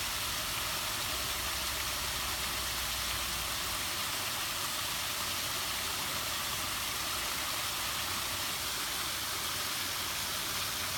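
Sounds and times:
small waterfall rushing: 0:00.0 - 0:10.9.

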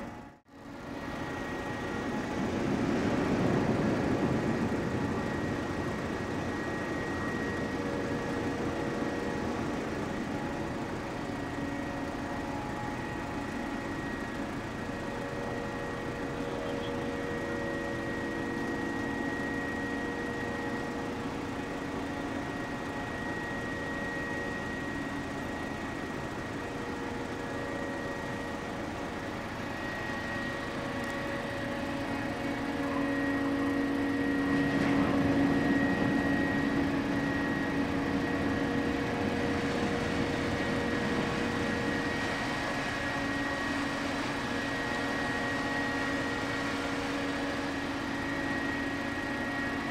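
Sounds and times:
ship machinery humming: 0:00.0 - 0:49.9.

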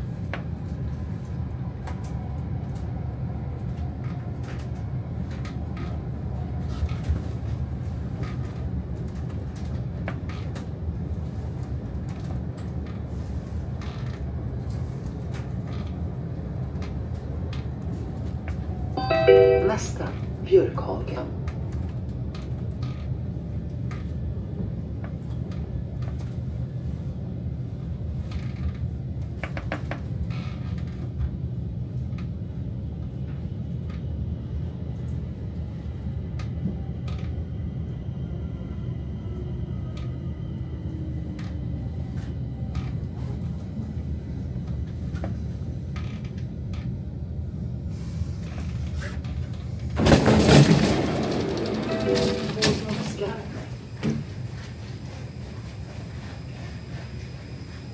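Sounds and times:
falling whine of slowing train: 0:00.0 - 0:57.9
train wheels rumbling on rail: 0:00.0 - 0:57.9
clicks of train wheels: 0:48.5 - 0:57.9.

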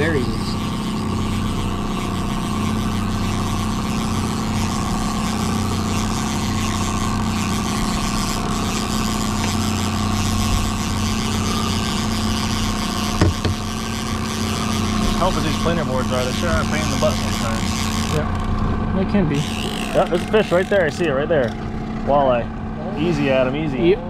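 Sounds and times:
outboard motor running: 0:00.0 - 0:24.0.

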